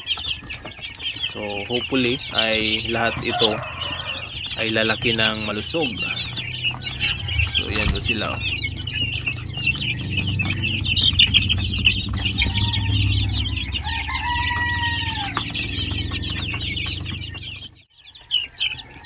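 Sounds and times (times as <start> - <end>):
chicks peeping and chirping: 0.0 - 19.0
rooster crowing: 2.3 - 17.2, 18.1 - 19.0
steady low hum: 5.0 - 17.7.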